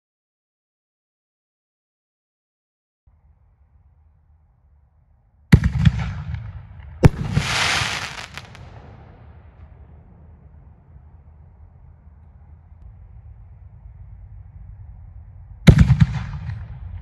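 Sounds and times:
hiss of burning stars: 0:07.3 - 0:08.6.

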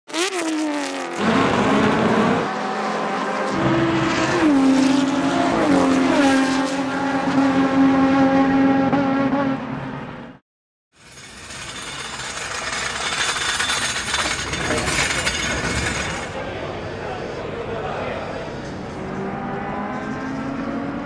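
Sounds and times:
race car engine at high revs: 0:00.1 - 0:09.9, 0:18.6 - 0:21.0
race car passing: 0:17.3 - 0:21.0.

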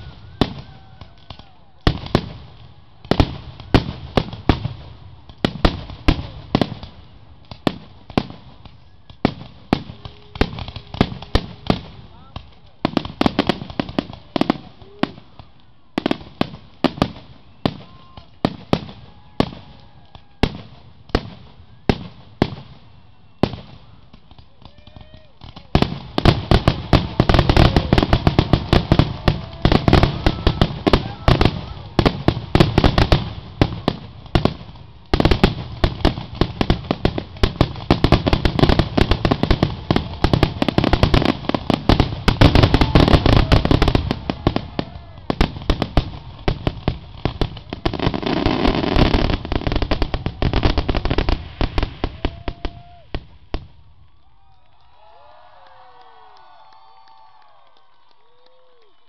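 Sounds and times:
fireworks booming and crackling: 0:00.0 - 0:54.0.

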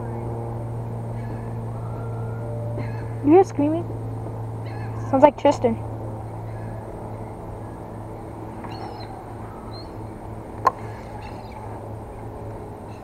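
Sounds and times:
low engine hum: 0:00.0 - 0:13.0
faint high wavering calls: 0:01.1 - 0:03.5, 0:06.4 - 0:13.0.

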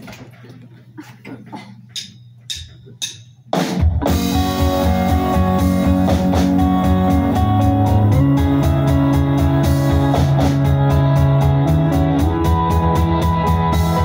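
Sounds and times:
bass drum beat: 0:02.5 - 0:14.0
live rock band playing: 0:03.8 - 0:14.0.

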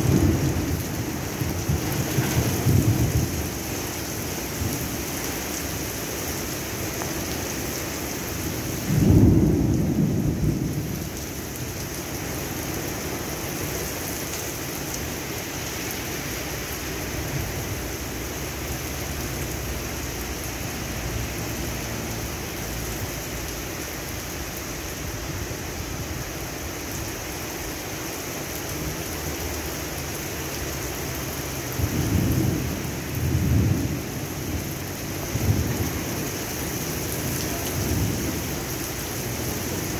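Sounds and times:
thunder: 0:00.0 - 0:03.4, 0:08.8 - 0:11.1
heavy rain falling: 0:00.0 - 0:39.9.

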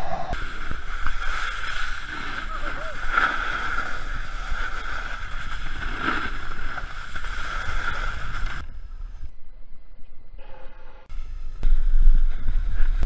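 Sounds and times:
snowboard sliding on snow: 0:00.4 - 0:08.7.

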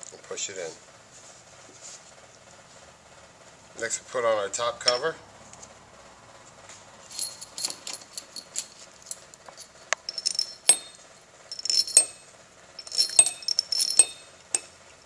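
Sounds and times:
metal bolts clinking: 0:04.8 - 0:05.2, 0:07.1 - 0:14.8.

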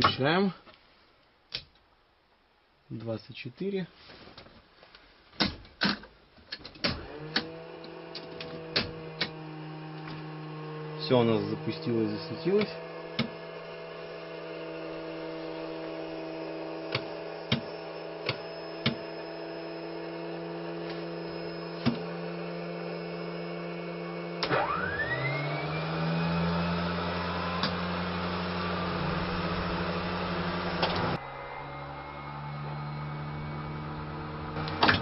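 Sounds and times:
electrical hum: 0:06.9 - 0:35.0
electric unit whine rising in pitch: 0:07.0 - 0:35.0.

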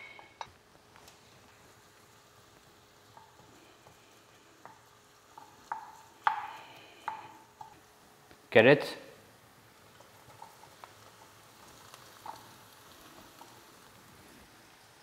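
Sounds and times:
spatula stirring in frying pan: 0:00.0 - 0:08.2, 0:09.4 - 0:15.0
faint sizzling: 0:00.0 - 0:15.0
spatula knocking and scraping pan: 0:04.6 - 0:07.8.

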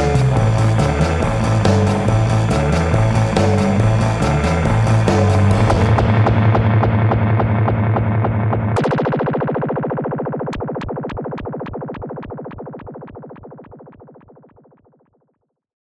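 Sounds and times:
surf rock band playing: 0:00.0 - 0:07.8
pulsing ringing guitar chord: 0:00.0 - 0:10.8.

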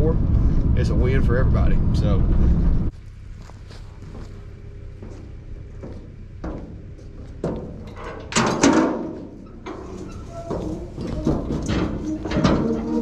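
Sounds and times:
metal clanks and bangs: 0:05.9 - 0:13.0.

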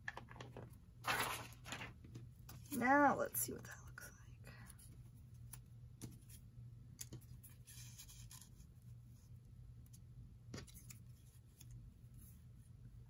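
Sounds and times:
paper rustling: 0:01.0 - 0:02.8.

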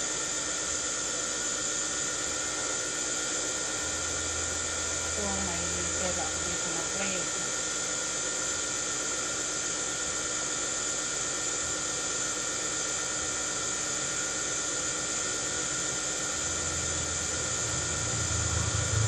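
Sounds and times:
electric motor whine: 0:00.0 - 0:19.0
deep hum: 0:03.7 - 0:06.8, 0:16.4 - 0:19.0
hiss: 0:16.0 - 0:19.0.

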